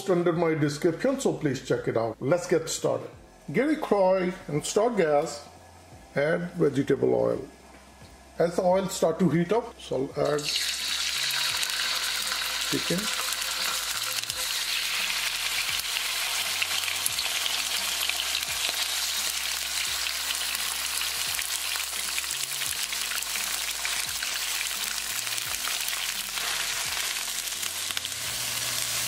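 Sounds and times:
chicken sizzling in hot oil: 0:10.3 - 0:29.0.

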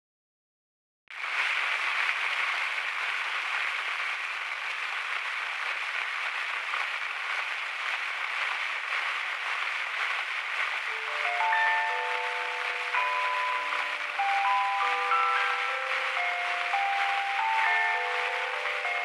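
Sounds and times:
steady hiss: 0:04.8 - 0:19.0.

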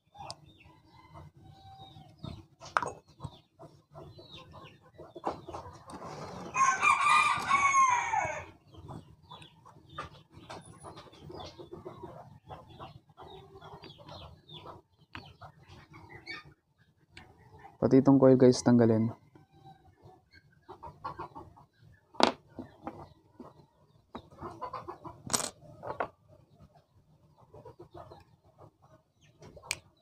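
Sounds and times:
rooster crowing: 0:06.5 - 0:08.5.

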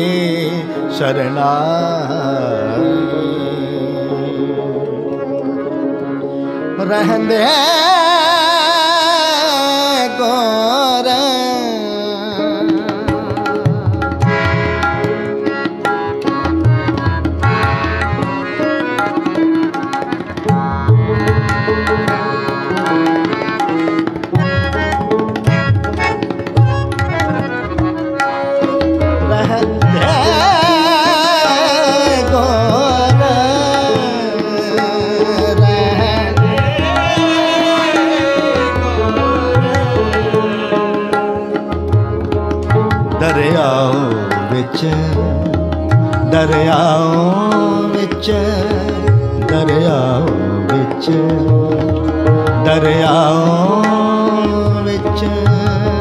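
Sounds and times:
sustained melodic accompaniment: 0:00.0 - 0:56.0
tabla playing a steady rhythm: 0:00.0 - 0:56.0
wavering ornamented melody line: 0:11.6 - 0:56.0.

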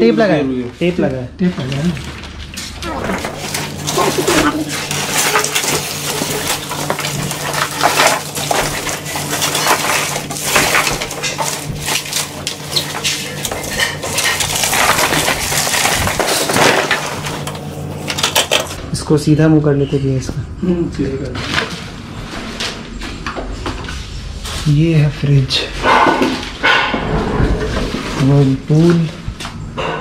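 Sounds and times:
plastic and foam packaging crackling: 0:00.8 - 0:18.8.

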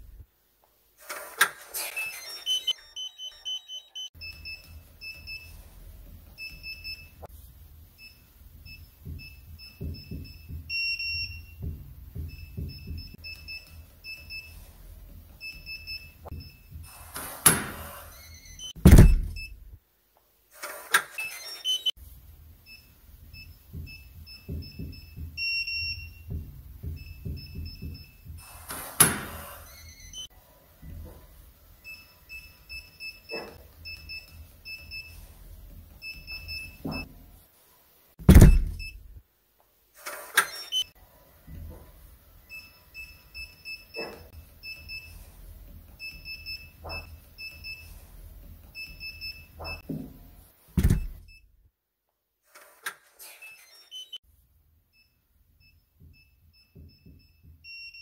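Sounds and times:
keypad beeps: 0:01.9 - 0:05.5
door lock clunk: 0:18.8 - 0:19.8, 0:38.2 - 0:39.2, 0:50.8 - 0:51.4.

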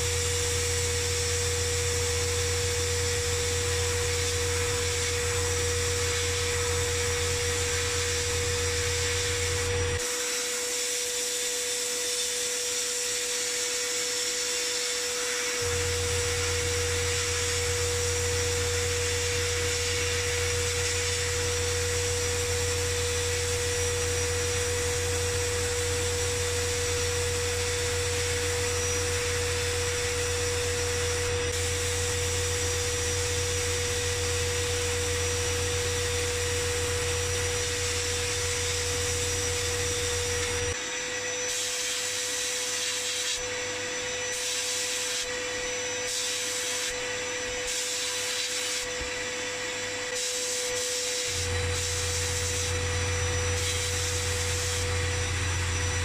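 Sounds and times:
high whine: 0:00.0 - 0:10.2, 0:15.4 - 0:40.8, 0:51.3 - 0:56.0.

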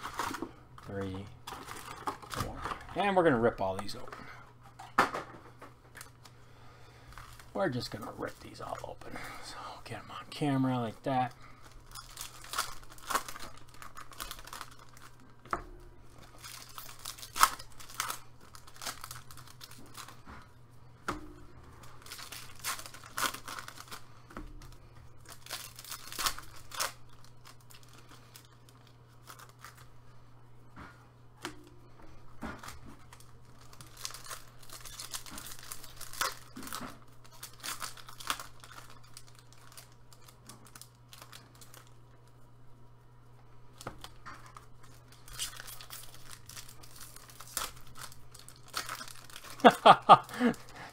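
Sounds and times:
card wrappers tearing and crinkling: 0:00.0 - 0:04.1, 0:07.0 - 0:09.0, 0:10.4 - 0:15.5, 0:16.1 - 0:20.3, 0:21.8 - 0:29.9, 0:32.5 - 0:42.0, 0:43.7 - 0:50.9.

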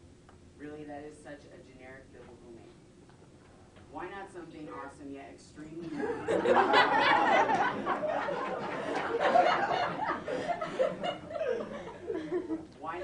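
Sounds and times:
students laughing together: 0:05.9 - 0:12.7.

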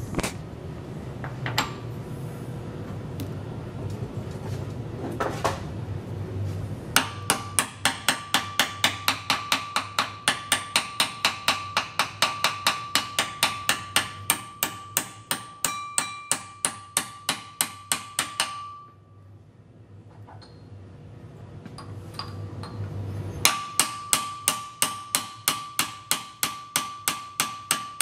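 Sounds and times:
hammer tapping steel punch: 0:07.0 - 0:19.0, 0:23.4 - 0:28.0.

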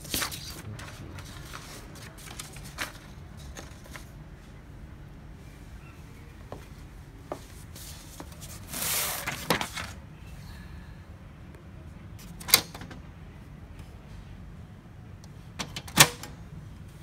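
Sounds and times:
rustling plastic scrape: 0:00.0 - 0:04.2, 0:07.8 - 0:10.0.

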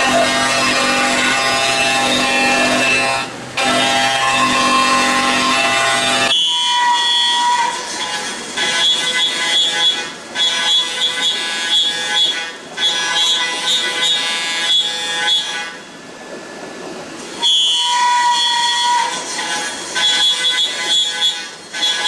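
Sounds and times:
milling cutter whine: 0:00.0 - 0:11.8.

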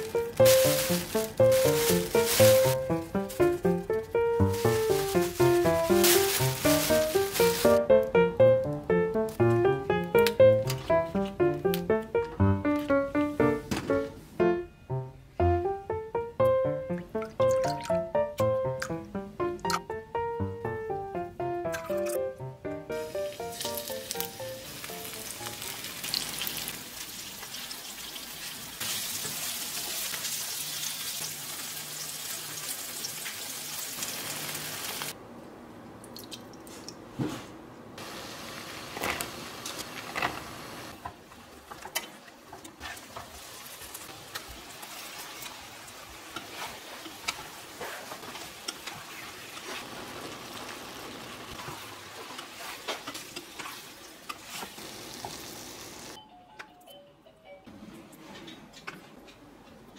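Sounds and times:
oil sizzling in a frying pan: 0:00.0 - 0:03.4, 0:04.4 - 0:07.8, 0:23.0 - 0:35.2, 0:38.0 - 0:41.0, 0:42.8 - 0:56.2
sauce simmering: 0:43.0 - 0:56.2.

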